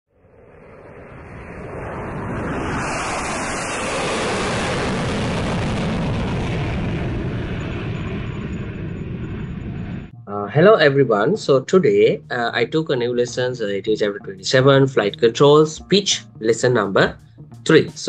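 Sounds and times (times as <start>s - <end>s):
jet airliner roar: 0.2s - 18.0s.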